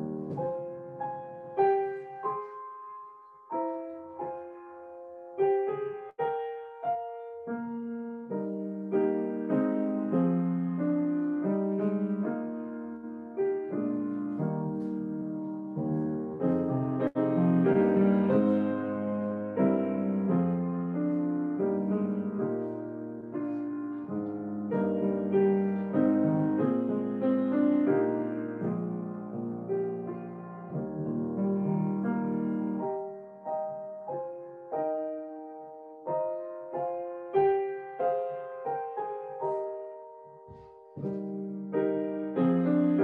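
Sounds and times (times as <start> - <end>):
slow gentle piano piece: 0.0 - 43.0.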